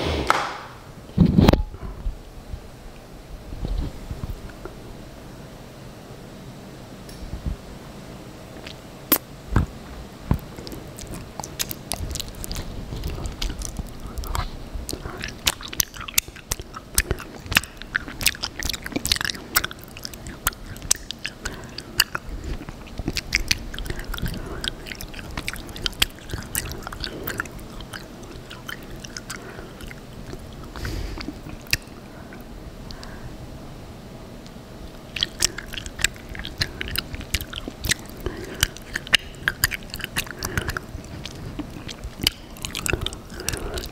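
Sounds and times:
sticky wet mouth chewing: 10.3s - 33.2s, 34.9s - 43.9s.

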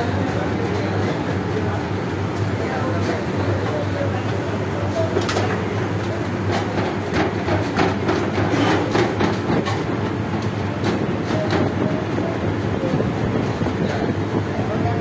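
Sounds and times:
hands pressing dough on steel: 6.5s - 11.8s.

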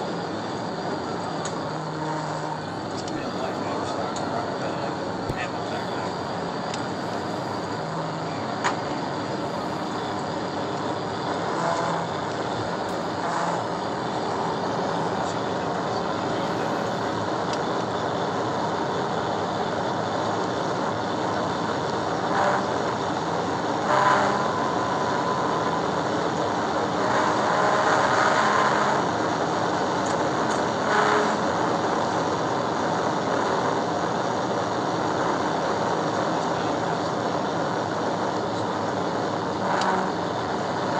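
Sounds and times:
road tyre and wind noise: 0.0s - 40.9s.

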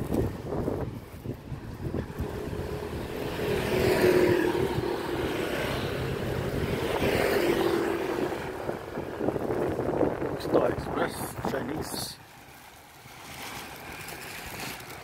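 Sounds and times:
motor scooters passing: 0.0s - 10.4s.

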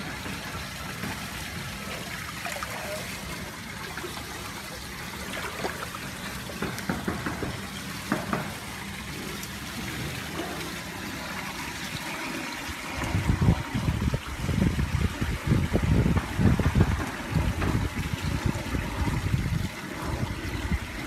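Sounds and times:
pool water trickling and lapping: 0.0s - 21.0s
low rumbling bumps: 13.0s - 19.6s.

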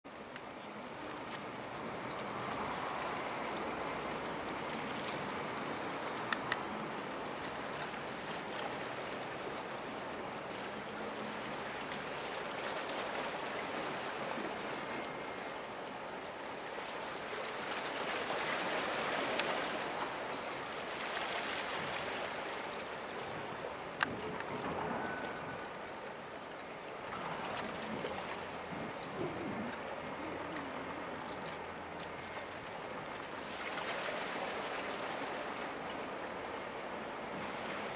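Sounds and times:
water lapping at shoreline: 0.1s - 37.9s.

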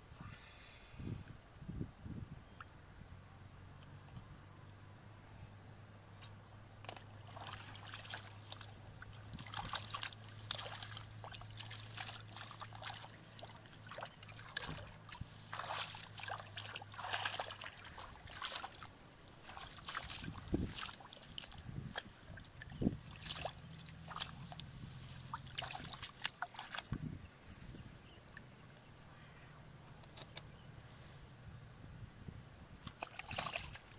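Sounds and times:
muddy water splashing: 6.2s - 27.1s, 32.8s - 33.9s.

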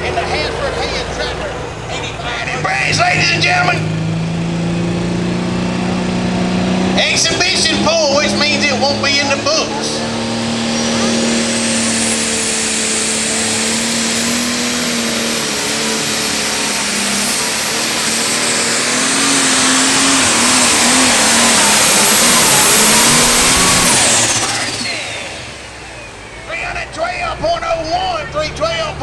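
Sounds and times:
diesel engine at full power: 0.0s - 29.0s
turbo whistle: 10.5s - 12.2s.

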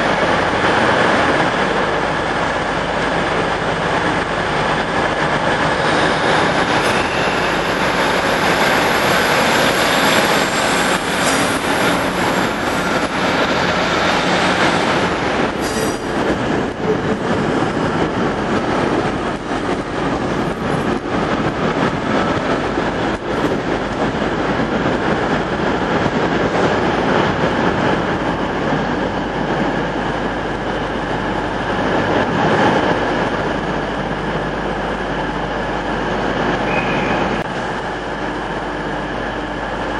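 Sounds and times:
train diesel engines running: 0.0s - 39.9s
faint wheel squeal: 36.7s - 37.3s.

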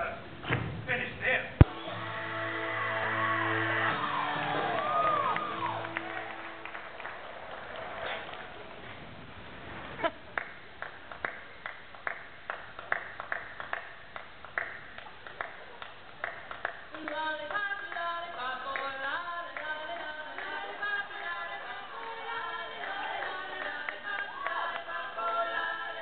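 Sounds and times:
hand claps: 10.4s - 18.1s, 22.8s - 25.0s
music with singing: 16.9s - 26.0s.

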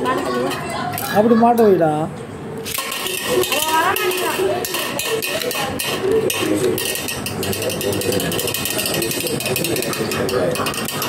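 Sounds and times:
spinning top rattling on metal plate: 2.6s - 11.0s.

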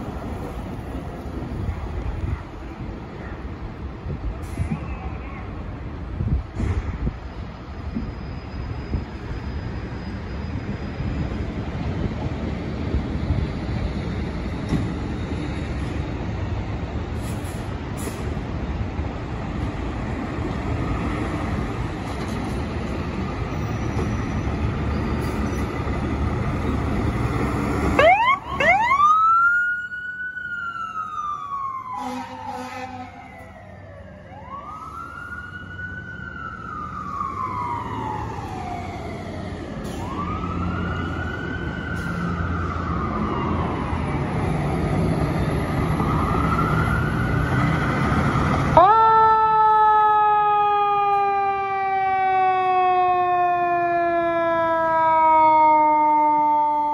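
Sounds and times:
fire engine siren wailing: 24.5s - 56.9s.

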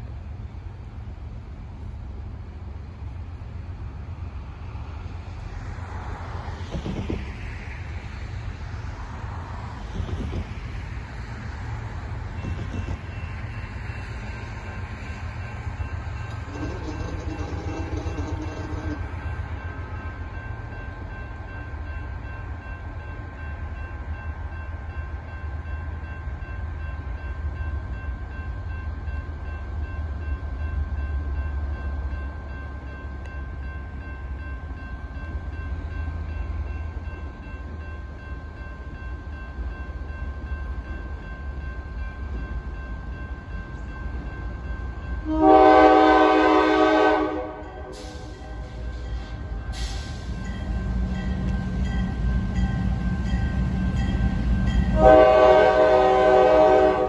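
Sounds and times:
diesel locomotive rumbling: 0.0s - 57.0s
locomotive air horn blast: 16.4s - 19.2s, 45.2s - 48.3s, 54.9s - 57.0s.

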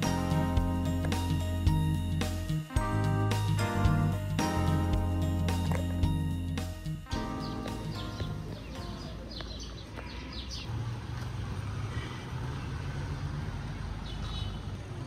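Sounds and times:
street traffic hum: 0.0s - 15.0s
small birds chirping: 3.3s - 10.8s, 13.9s - 15.0s.

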